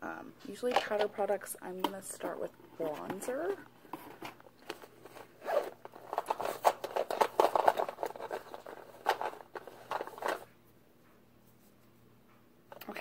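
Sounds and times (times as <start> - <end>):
bag rustling: 2.9 - 10.5.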